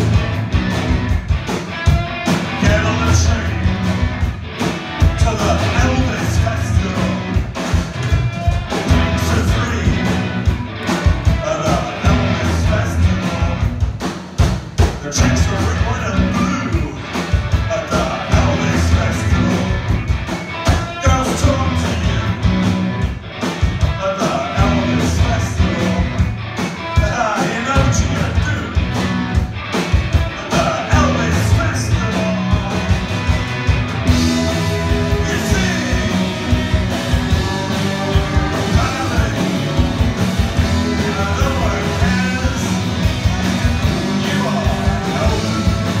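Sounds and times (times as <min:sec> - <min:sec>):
electric guitars: 0:00.0 - 0:46.0
steady drum beat: 0:00.0 - 0:46.0
man singing into microphone: 0:02.6 - 0:03.6, 0:05.2 - 0:07.3, 0:09.1 - 0:10.1, 0:11.4 - 0:13.7, 0:15.0 - 0:17.0, 0:17.7 - 0:19.7, 0:20.8 - 0:22.4, 0:24.0 - 0:26.1, 0:27.0 - 0:28.8, 0:30.4 - 0:32.9, 0:35.2 - 0:36.4, 0:38.4 - 0:39.7, 0:40.8 - 0:43.4, 0:44.0 - 0:46.0.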